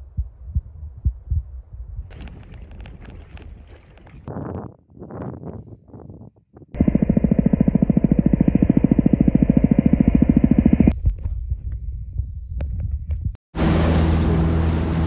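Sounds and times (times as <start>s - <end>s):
helicopter rotor chop: 6.8s - 11.0s.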